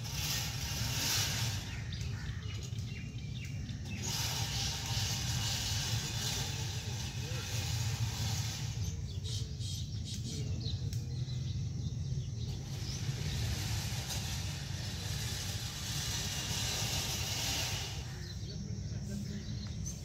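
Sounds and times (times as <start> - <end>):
faint hiss: 0.0 - 11.6, 12.3 - 20.0
steady low rumble: 4.8 - 20.0.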